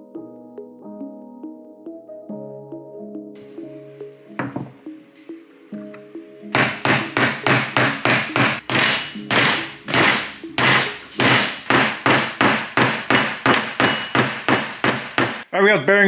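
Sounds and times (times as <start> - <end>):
hammer striking metal: 6.5 - 15.5.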